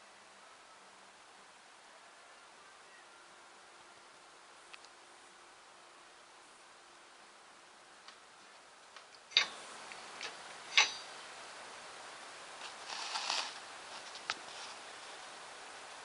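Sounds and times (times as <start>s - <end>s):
scratchy rustle: 12.6s - 15.4s.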